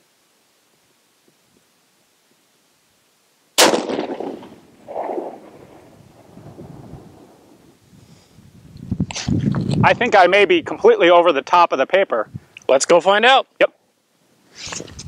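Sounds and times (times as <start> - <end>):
rifle shot ringing: 3.6 - 6.0.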